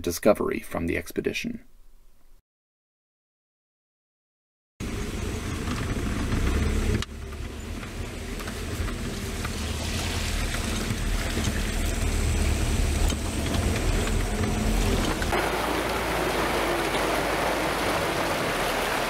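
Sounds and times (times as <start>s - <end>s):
road noise rushing: 4.8s - 19.0s
vehicle engine rumble: 4.8s - 19.0s.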